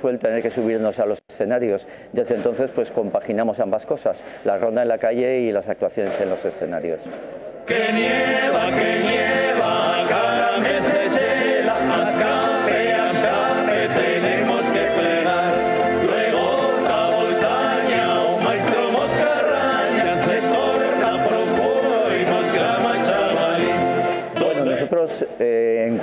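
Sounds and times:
acoustic guitars: 0:07.7 - 0:24.9
men singing in chorus: 0:07.7 - 0:24.9
upright bass: 0:07.7 - 0:24.9.

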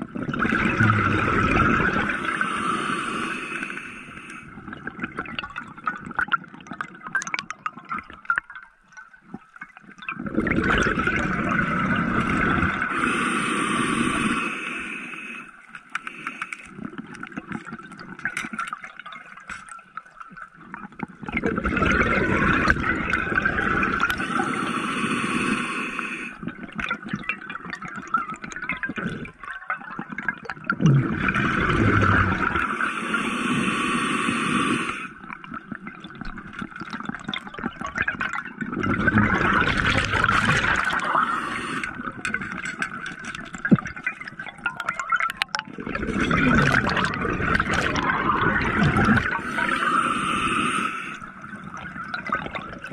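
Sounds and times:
regulator exhaust bubbles: 0:27.9 - 0:32.6, 0:37.0 - 0:49.7.

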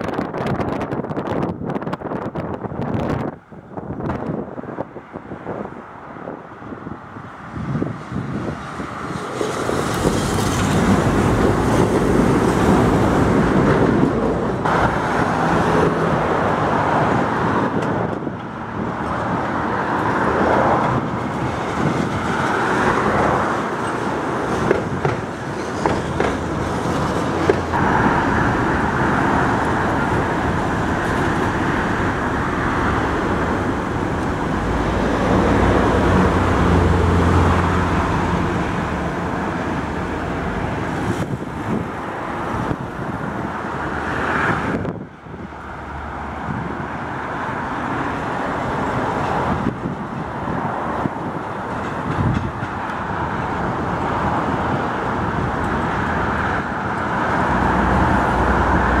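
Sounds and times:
road traffic noise: 0:00.0 - 0:59.0
tram rolling on tracks: 0:00.0 - 0:59.0.

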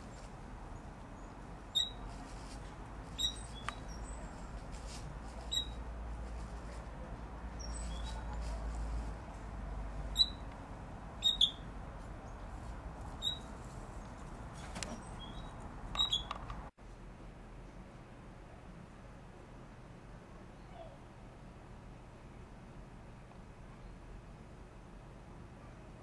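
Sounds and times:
short high chirping calls: 0:01.7 - 0:02.1, 0:03.1 - 0:04.2, 0:05.5 - 0:05.8, 0:10.1 - 0:10.5, 0:11.2 - 0:11.7, 0:13.2 - 0:13.5, 0:14.9 - 0:16.3.

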